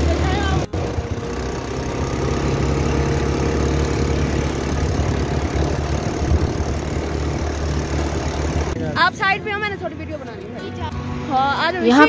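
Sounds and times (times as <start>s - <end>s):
quad bike engine running: 0.0s - 9.2s.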